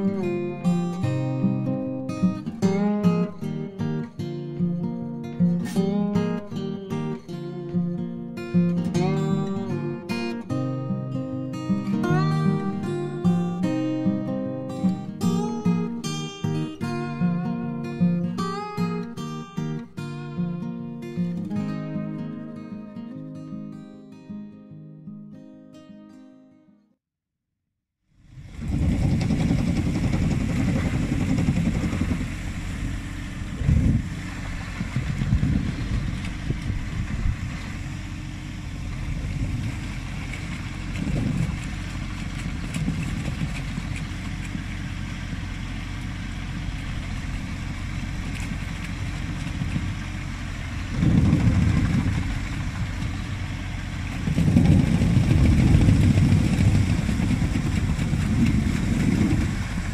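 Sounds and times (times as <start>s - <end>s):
boat engine low drone: 28.2s - 59.9s.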